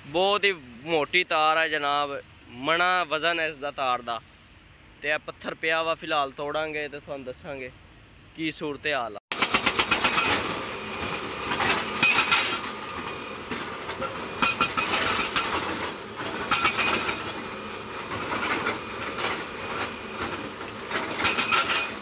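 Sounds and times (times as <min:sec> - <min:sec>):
hydraulic breaker hammering stone: 0:09.3 - 0:22.0
mechanical clatter: 0:09.3 - 0:22.0.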